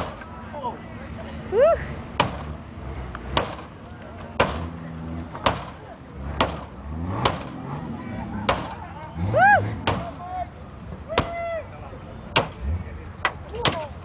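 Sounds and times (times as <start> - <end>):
sledgehammer striking car metal: 2.2 - 2.6, 3.3 - 3.7, 4.4 - 7.6, 8.4 - 8.8, 9.8 - 10.2, 11.1 - 11.4, 12.3 - 12.6, 13.2 - 14.0.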